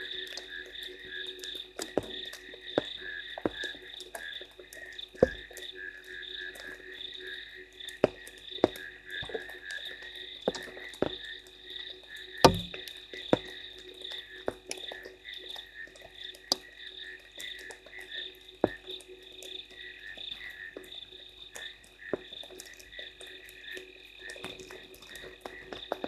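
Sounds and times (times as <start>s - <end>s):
frogs calling: 0.0s - 26.0s
sharp taps: 12.5s - 12.8s.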